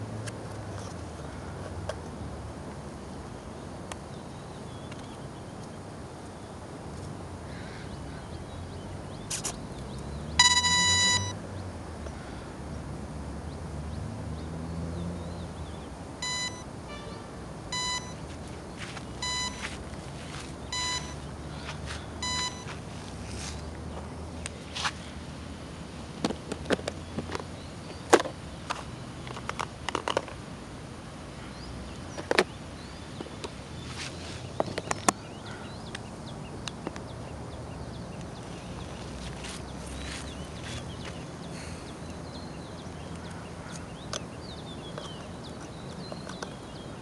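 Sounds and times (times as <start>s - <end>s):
long high beep: 10.4s - 11.4s, 16.2s - 18.2s, 19.2s - 19.7s, 20.7s - 21.2s, 22.2s - 22.7s
short beeps: 10.4s - 11.4s, 16.2s - 18.2s, 19.2s - 19.7s, 20.7s - 21.2s, 22.2s - 22.7s.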